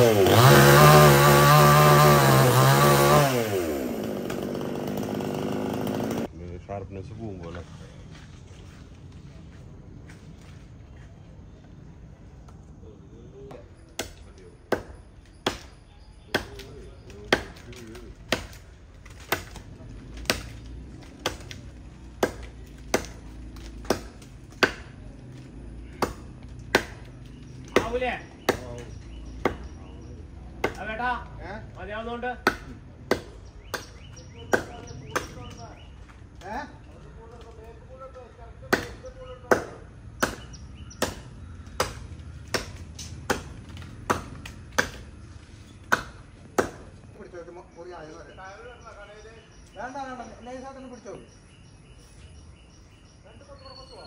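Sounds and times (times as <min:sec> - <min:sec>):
machete chopping wood: 0:14.0 - 0:15.7, 0:16.3 - 0:25.0, 0:25.8 - 0:29.8, 0:30.6 - 0:31.0, 0:32.4 - 0:35.6, 0:38.7 - 0:45.2, 0:45.8 - 0:47.0.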